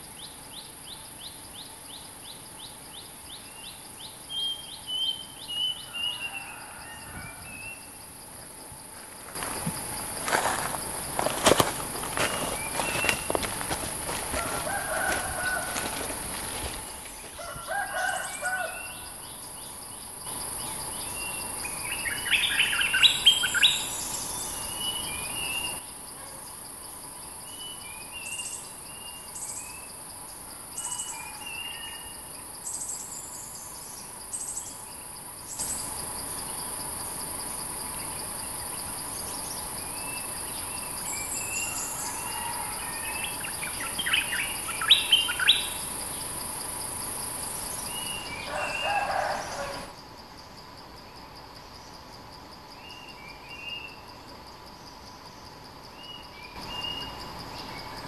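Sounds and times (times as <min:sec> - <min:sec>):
insects hissing: 0:00.0 - 0:58.0
bulbuls singing: 0:09.3 - 0:25.8, 0:37.8 - 0:46.4, 0:47.5 - 0:49.9.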